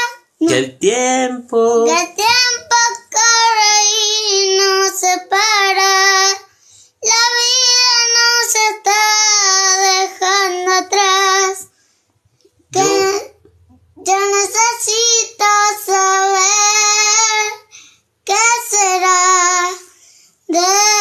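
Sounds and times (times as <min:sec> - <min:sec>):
young boy singing: 0:00.0 - 0:11.7, 0:12.7 - 0:13.4, 0:14.0 - 0:21.0.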